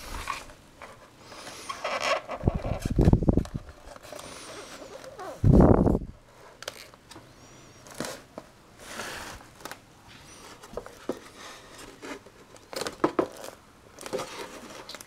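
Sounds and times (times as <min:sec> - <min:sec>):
foam rubbing and knocking: 0:00.0 - 0:05.9.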